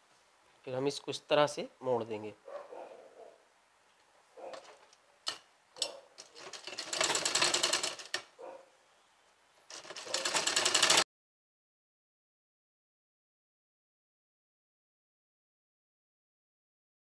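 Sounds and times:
sewing machine clicks: 0:05.3 - 0:08.3, 0:09.7 - 0:11.0
sewing machine stitching: 0:06.2 - 0:08.3, 0:09.7 - 0:11.0.

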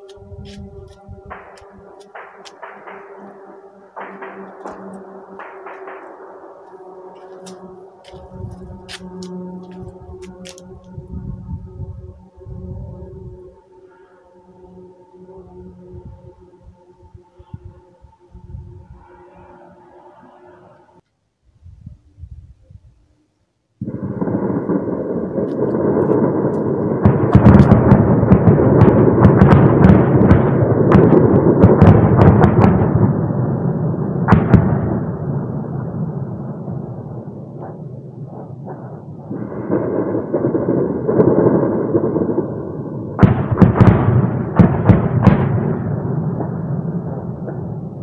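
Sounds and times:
sharp echoing bangs: 0:00.2 - 0:11.8, 0:23.8 - 0:48.0
rumble of gunfire and blasts: 0:00.3 - 0:12.0, 0:23.8 - 0:48.0.

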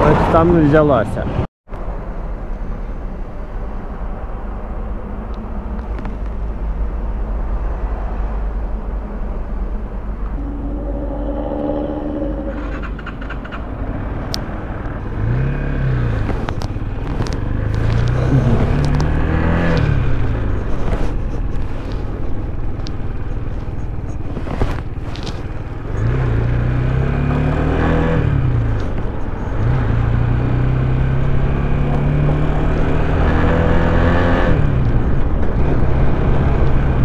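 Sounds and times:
wind noise: 0:08.5 - 0:14.3.

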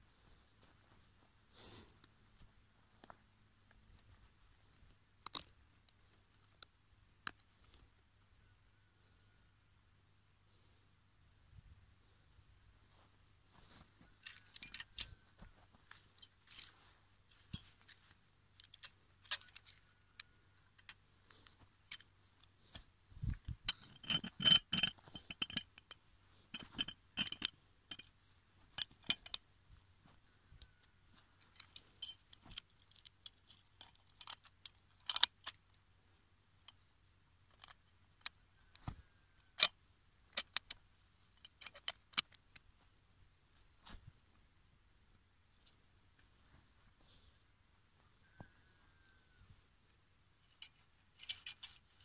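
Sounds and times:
metal trap clicking and clinking: 0:18.5 - 0:22.5, 0:23.4 - 0:29.4, 0:30.5 - 0:35.6, 0:39.4 - 0:40.8, 0:41.4 - 0:42.4, 0:50.5 - 0:52.0.

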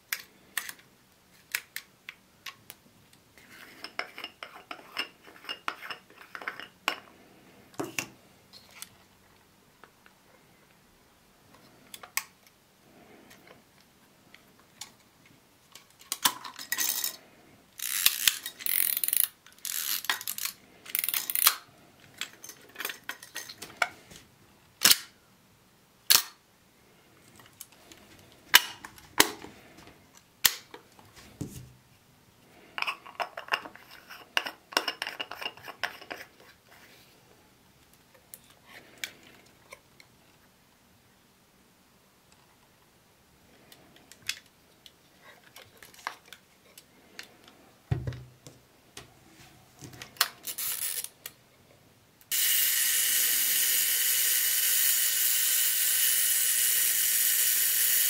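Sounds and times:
rasping ratchet bursts: 0:17.8 - 0:21.4, 0:52.3 - 0:58.0.

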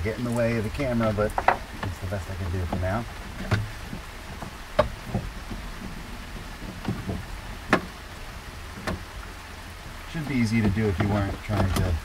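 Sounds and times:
steady rain hiss: 0:00.0 - 0:12.0.

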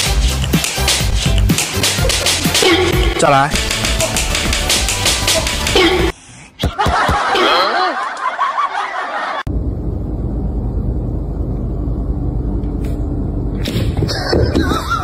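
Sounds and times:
steady low rumble: 0:09.5 - 0:14.1.

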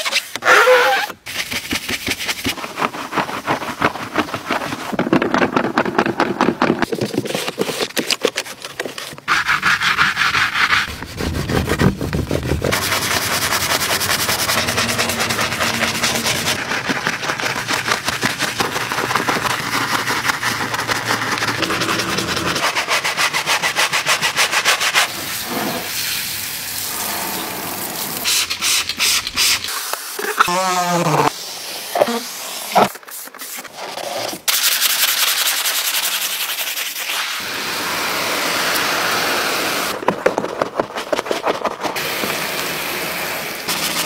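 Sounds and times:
brush scrubbing through foam: 0:01.3 - 0:05.0, 0:08.8 - 0:26.0, 0:43.7 - 0:44.0
pad wiping leather: 0:09.3 - 0:16.6.

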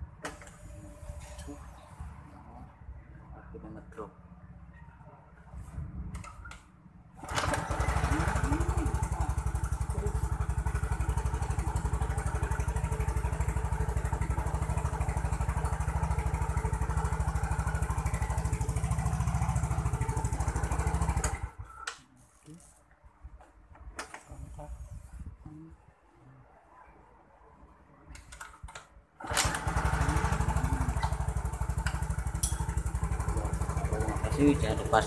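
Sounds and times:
scooter engine idling: 0:07.2 - 0:21.9, 0:29.2 - 0:35.0.

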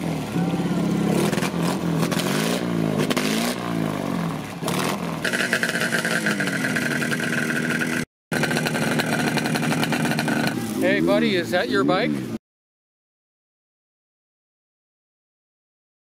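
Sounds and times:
motorcycle engine revving: 0:00.0 - 0:12.4
motorcycle engine with high whine: 0:00.0 - 0:12.4.

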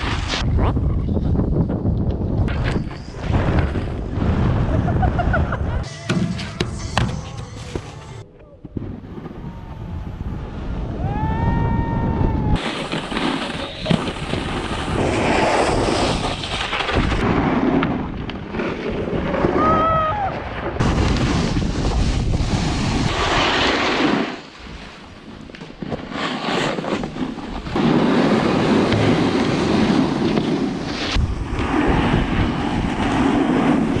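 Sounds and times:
wind buffeting microphone: 0:00.0 - 0:05.8, 0:08.8 - 0:12.6, 0:18.0 - 0:23.4, 0:27.6 - 0:34.0
snowboard scraping over snow: 0:12.5 - 0:19.8, 0:20.7 - 0:34.0.

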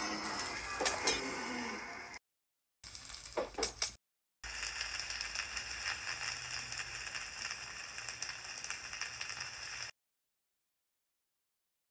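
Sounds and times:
fire crackling: 0:02.8 - 0:10.0.

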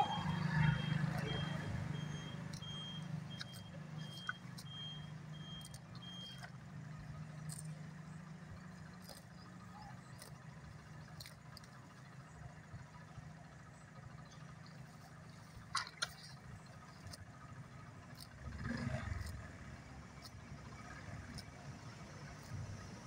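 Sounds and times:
faint engine hum: 0:00.0 - 0:23.0
cow tearing grass: 0:08.9 - 0:12.0, 0:18.0 - 0:23.0.

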